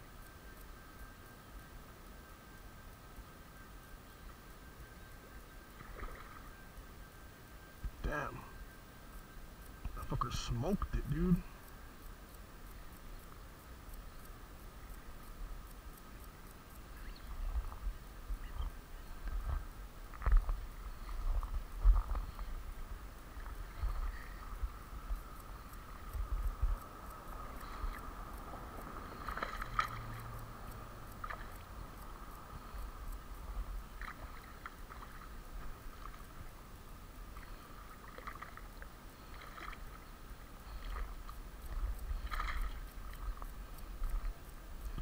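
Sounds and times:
fish splashing in water: 0:29.0 - 0:31.8, 0:33.9 - 0:36.3, 0:37.4 - 0:40.0, 0:40.6 - 0:43.5.

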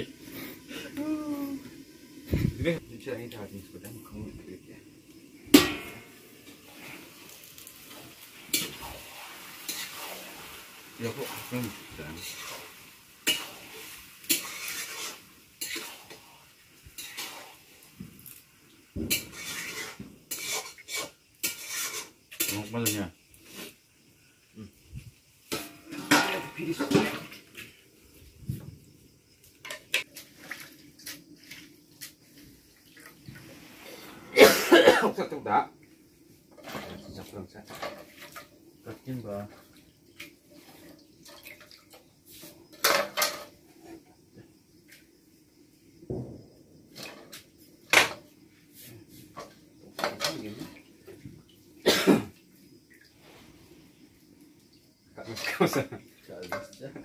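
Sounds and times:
food sizzling in a wok: 0:00.0 - 0:57.0
sharp hit on a wok: 0:05.5 - 0:06.2
metal bowl clinking: 0:05.6 - 0:06.2.

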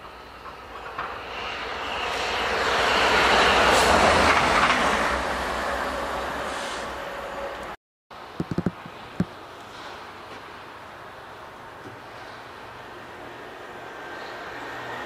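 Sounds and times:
train wheel noise: 0:00.0 - 0:07.8.

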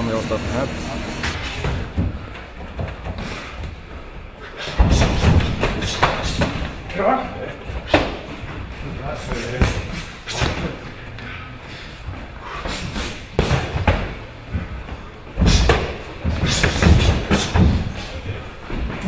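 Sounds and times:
punches thudding on pads: 0:15.4 - 0:18.0.

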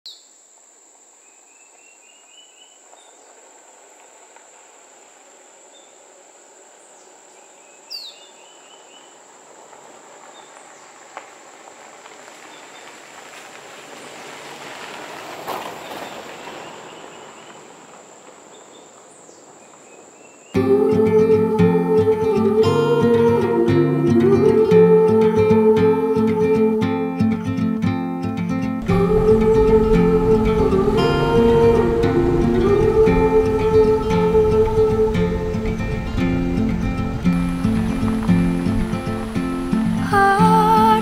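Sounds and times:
high insect drone: 0:00.1 - 0:12.8, 0:16.4 - 0:41.0
bird chirps: 0:01.2 - 0:03.4, 0:06.8 - 0:09.2, 0:15.8 - 0:17.7, 0:18.5 - 0:20.6
tyres crunching on gravel: 0:01.6 - 0:06.3, 0:08.4 - 0:20.6, 0:28.8 - 0:41.0
car engine running: 0:28.8 - 0:41.0.

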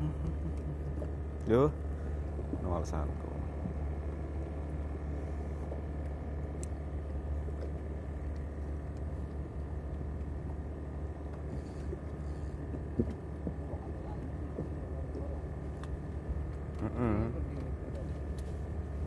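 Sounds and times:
boat engine running: 0:00.0 - 0:19.0.

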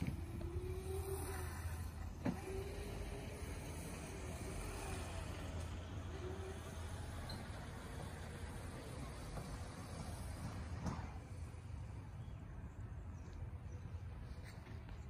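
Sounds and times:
electric motorcycle motor whining: 0:00.0 - 0:12.2.

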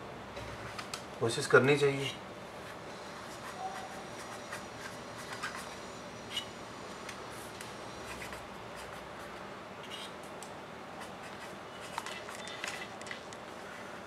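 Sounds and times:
dip pen scratching on paper: 0:03.0 - 0:05.8.

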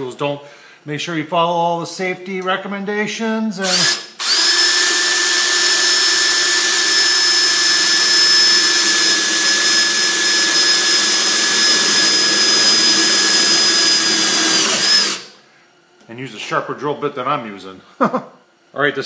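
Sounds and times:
drill boring into steel: 0:03.6 - 0:15.3.

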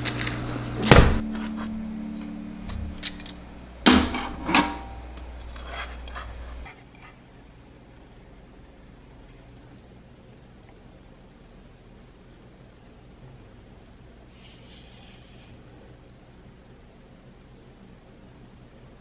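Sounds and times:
low steady hum: 0:00.0 - 0:19.0
metal cake pan clanking: 0:01.0 - 0:05.7.

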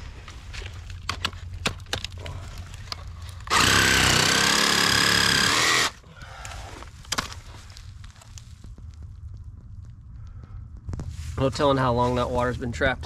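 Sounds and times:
power saw motor whine: 0:03.5 - 0:06.0.

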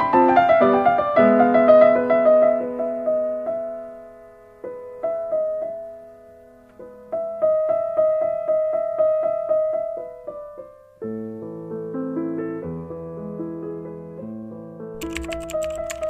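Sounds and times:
piano music: 0:15.0 - 0:16.0.

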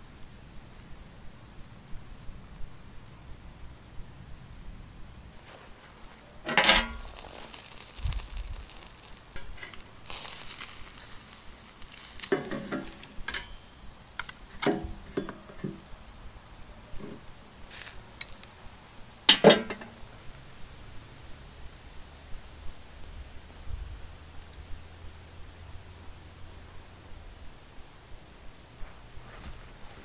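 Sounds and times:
steak sizzling on a grill: 0:05.4 - 0:18.5
metal tongs clinking on grate: 0:05.8 - 0:15.9, 0:17.8 - 0:18.5, 0:19.3 - 0:19.9.

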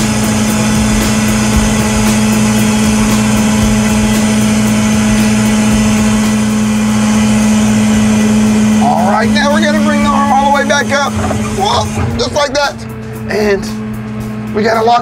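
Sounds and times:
compactor truck droning hum: 0:00.0 - 0:15.0
drum crushing trash: 0:10.0 - 0:13.2.

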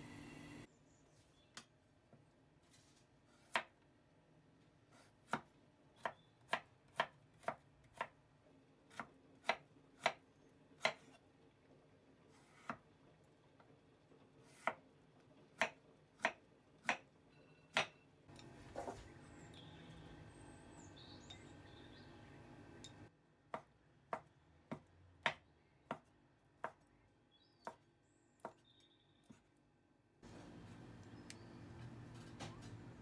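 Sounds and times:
knife chopping on wooden board: 0:03.4 - 0:03.8, 0:23.5 - 0:26.8.

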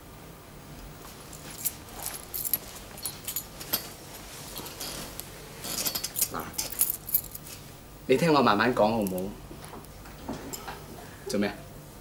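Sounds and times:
small metallic jingles: 0:01.3 - 0:04.0, 0:04.6 - 0:07.5.

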